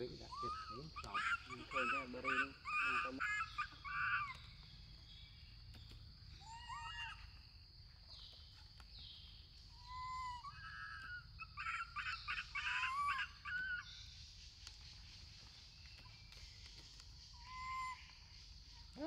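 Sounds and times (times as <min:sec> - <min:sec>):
high-pitched animal calls: 0:00.0 - 0:04.5, 0:06.4 - 0:07.4, 0:09.8 - 0:13.9
high-pitched insect drone: 0:00.0 - 0:08.2.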